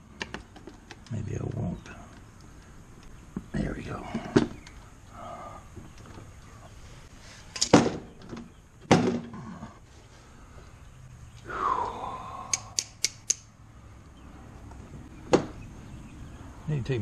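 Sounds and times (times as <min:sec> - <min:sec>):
rustle: 0:00.0 - 0:12.8
quick sharp clicks: 0:12.5 - 0:13.5.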